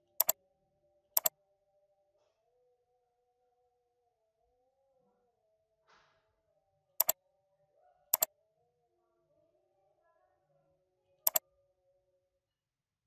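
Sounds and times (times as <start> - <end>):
computer mouse clicks: 0.1 - 0.4.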